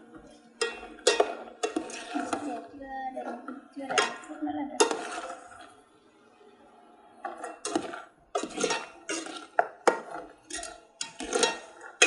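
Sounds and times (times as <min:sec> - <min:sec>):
metal skimmer scraping metal pot: 0:00.6 - 0:02.6, 0:03.9 - 0:05.7, 0:07.3 - 0:12.0.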